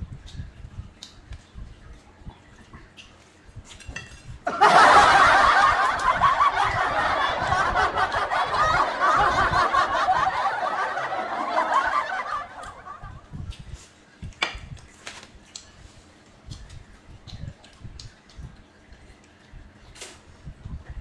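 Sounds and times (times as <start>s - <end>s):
canned laughter: 4.5s - 13.3s.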